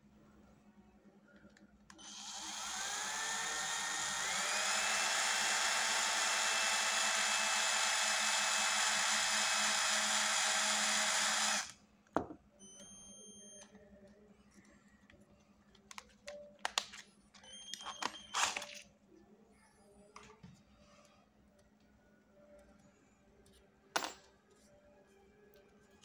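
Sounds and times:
cordless drill motor whine: 2.0 - 11.8.

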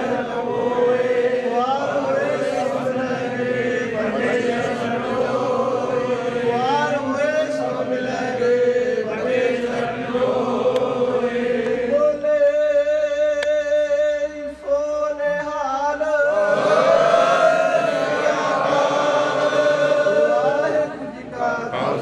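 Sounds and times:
congregation chanting in unison: 0.0 - 14.1, 15.2 - 22.0.

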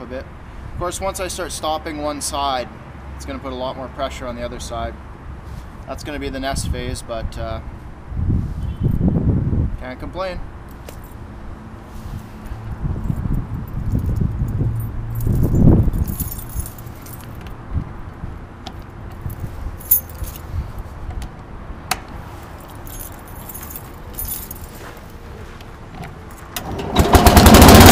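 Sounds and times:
keys jangling: 13.0 - 17.6, 19.1 - 20.5, 22.5 - 25.1.

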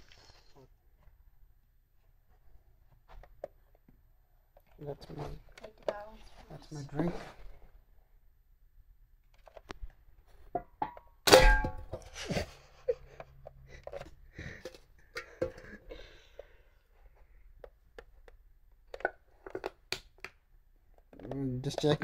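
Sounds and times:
can metal clicking and crinkling: 21.0 - 22.0.

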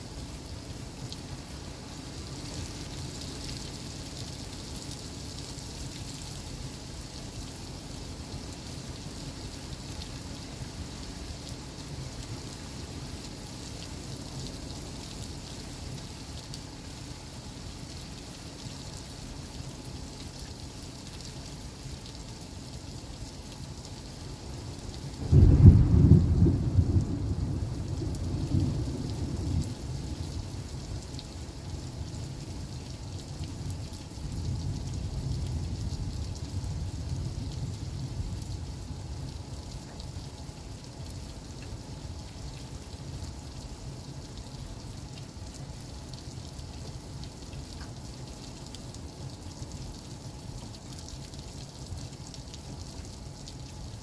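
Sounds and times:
heavy rain falling: 0.0 - 54.0
thunder clap rumbling: 25.3 - 29.7.

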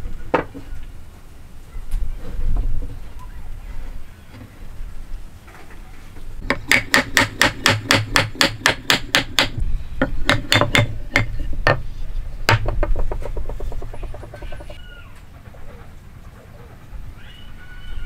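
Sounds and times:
hammer tapping on timber: 6.4 - 11.8, 12.5 - 14.8.

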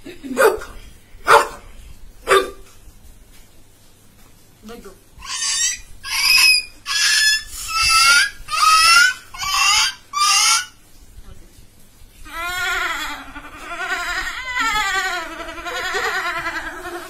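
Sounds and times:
boy making bird-like calls: 5.2 - 10.8.

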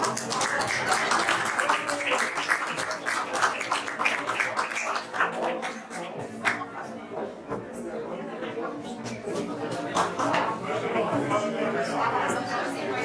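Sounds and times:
audience applauding: 0.0 - 6.1
faint voices: 0.0 - 13.0.

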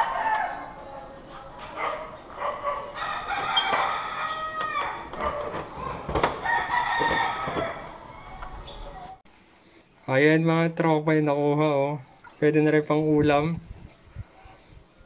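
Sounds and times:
roosters crowing: 0.0 - 9.2.

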